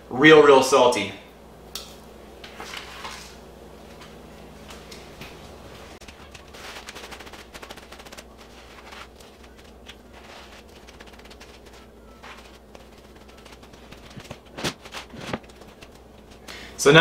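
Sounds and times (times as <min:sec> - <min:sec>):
low steady hum: 0:00.0 - 0:17.0
paper towel crackling: 0:02.6 - 0:16.7.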